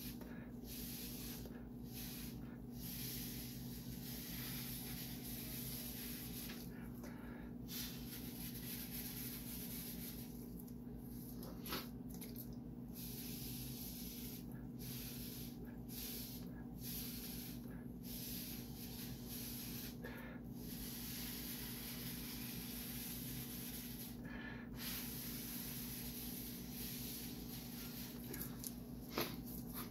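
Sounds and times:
air hissing from hose: 0:00.0 - 0:06.7, 0:13.0 - 0:24.2, 0:24.8 - 0:28.3
steady low hum: 0:00.0 - 0:29.9.

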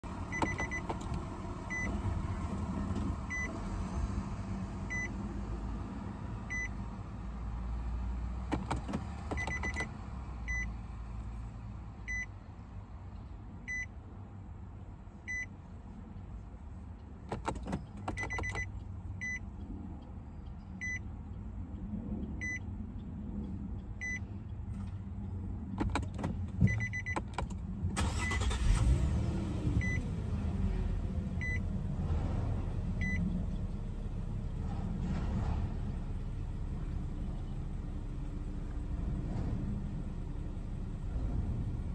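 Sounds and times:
dashboard warning chime beeping: 0:00.3 - 0:02.0, 0:03.3 - 0:03.5, 0:04.9 - 0:05.1, 0:06.5 - 0:06.7, 0:08.5 - 0:09.9, 0:10.5 - 0:10.7, 0:12.1 - 0:12.3, 0:13.7 - 0:13.9, 0:15.3 - 0:15.5, 0:17.3 - 0:19.4, 0:20.8 - 0:21.1, 0:22.4 - 0:22.6, 0:24.0 - 0:24.2, 0:25.8 - 0:28.8, 0:29.8 - 0:30.0, 0:31.4 - 0:31.6, 0:33.0 - 0:33.2.

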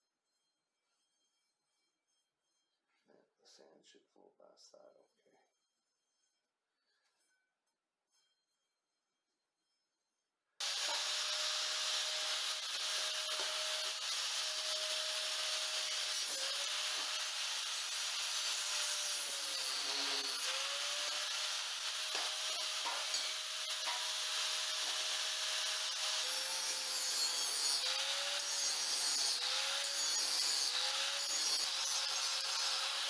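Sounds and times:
angle grinder on metal: 0:10.6 - 0:33.0.

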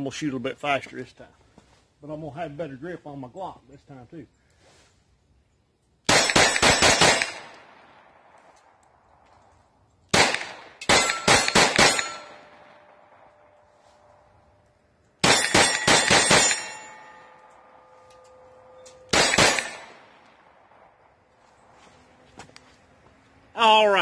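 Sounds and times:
pistol shots: 0:06.1 - 0:08.4, 0:10.1 - 0:13.2, 0:15.2 - 0:17.4, 0:19.1 - 0:20.8
steel targets clanging: 0:10.8 - 0:13.0, 0:15.2 - 0:20.2.

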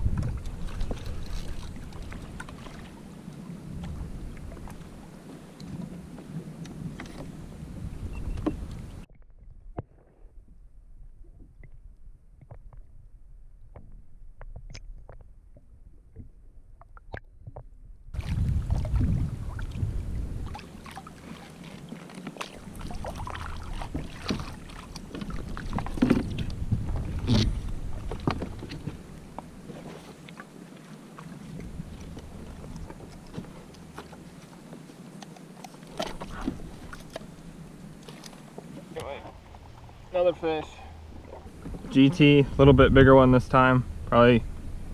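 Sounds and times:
water splashes: 0:00.0 - 0:07.6, 0:14.5 - 0:43.8
wind buffeting microphone: 0:00.0 - 0:09.1, 0:18.1 - 0:21.4, 0:22.5 - 0:29.7, 0:38.8 - 0:44.9
muffled underwater rumble: 0:00.0 - 0:21.4, 0:22.6 - 0:29.8, 0:36.0 - 0:44.9.

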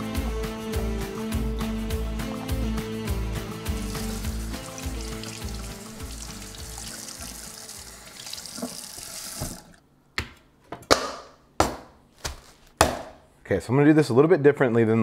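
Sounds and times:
faucet running into steel sink: 0:03.7 - 0:09.8.

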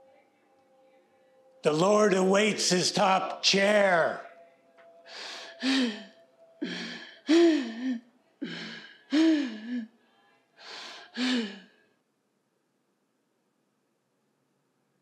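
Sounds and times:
person gasping for breath: 0:05.1 - 0:09.9, 0:10.6 - 0:11.7.

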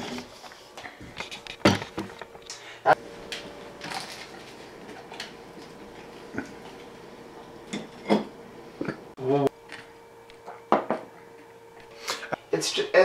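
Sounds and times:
person eating noisily: 0:03.8 - 0:06.9.

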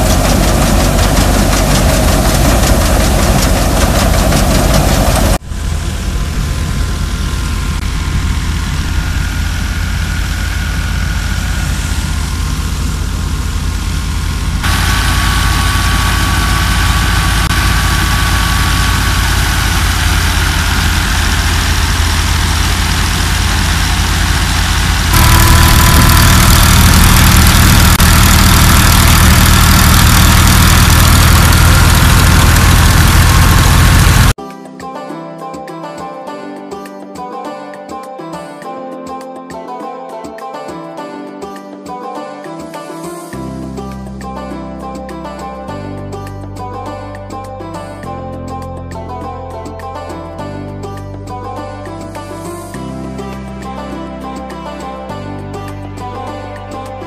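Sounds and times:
thresher machinery whine: 0:00.0 - 0:34.4
tractor diesel engine droning: 0:00.0 - 0:34.4.

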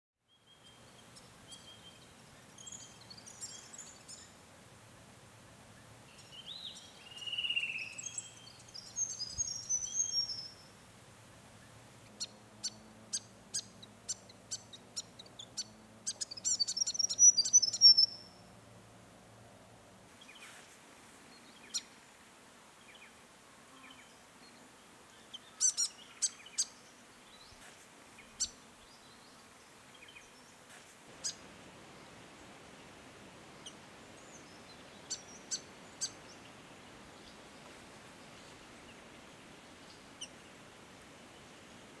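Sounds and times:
faint background noise: 0:00.2 - 0:42.0
bird chip calls: 0:12.2 - 0:18.4, 0:25.6 - 0:26.7.

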